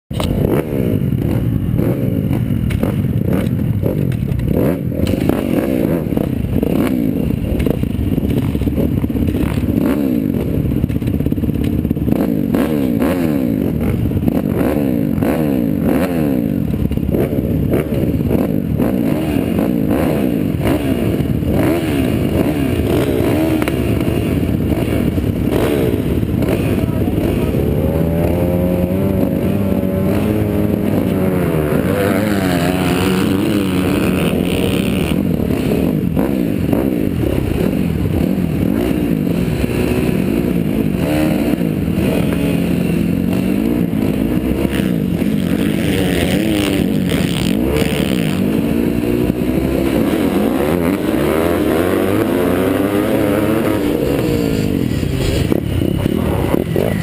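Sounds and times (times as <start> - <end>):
motocross bikes idling and revving: 0.1 - 57.0.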